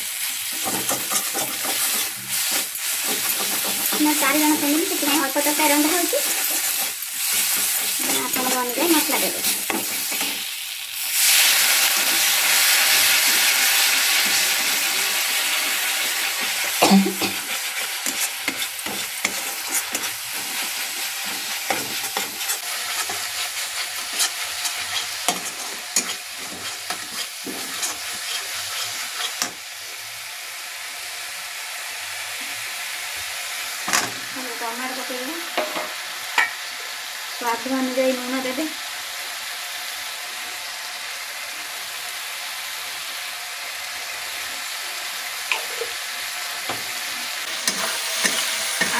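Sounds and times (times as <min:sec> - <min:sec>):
spice paste sizzling in oil: 0:00.0 - 0:48.9
metal spatula scraping pan: 0:00.4 - 0:10.5, 0:11.2 - 0:29.6, 0:47.5 - 0:48.9.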